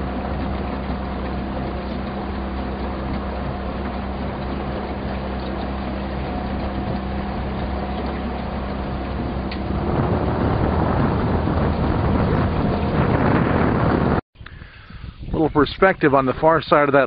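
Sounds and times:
low constant hum: 0.0s - 13.5s
motorboat engine running: 0.0s - 14.2s
water: 0.0s - 14.2s, 15.3s - 17.0s.

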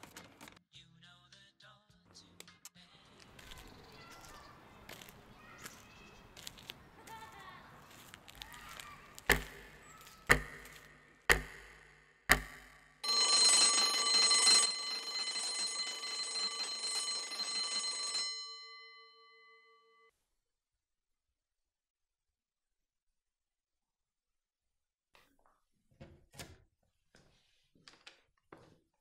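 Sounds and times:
wall clock ticking: 9.3s - 18.1s
electric bell ringing: 13.0s - 20.1s.

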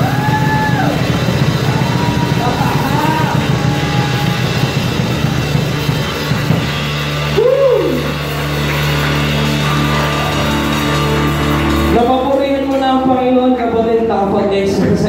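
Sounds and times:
drum kit and bass beat: 0.0s - 13.5s
live band playing: 0.0s - 15.0s.

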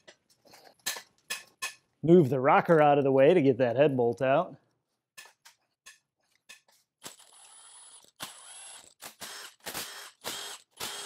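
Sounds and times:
impact driver bursts: 7.0s - 11.0s.

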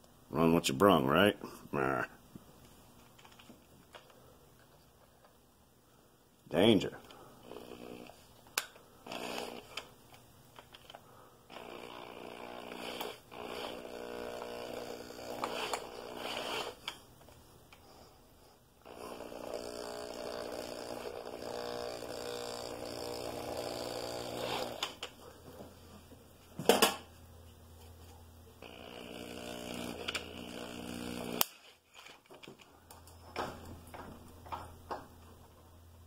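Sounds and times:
electric hand drill running: 7.4s - 8.2s, 9.0s - 9.9s, 11.5s - 16.8s, 18.8s - 25.0s, 28.6s - 31.5s.

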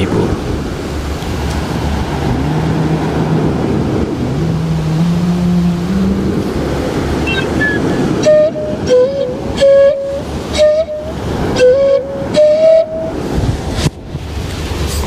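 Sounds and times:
sea surf: 0.0s - 15.0s
bamboo flute melody: 4.6s - 6.4s, 7.2s - 13.3s.

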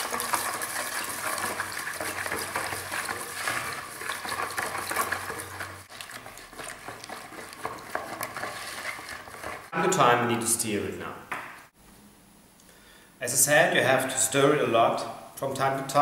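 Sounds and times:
water pouring into bucket: 0.0s - 9.7s
wooden spoon stirring: 0.0s - 10.2s.

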